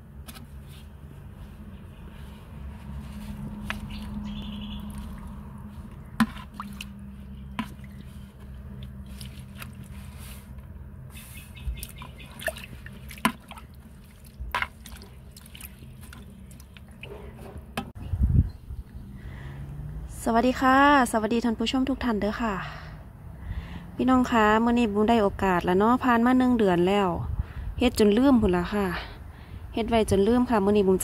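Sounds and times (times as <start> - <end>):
liquid stirred in plastic bucket: 2.1 - 17.9.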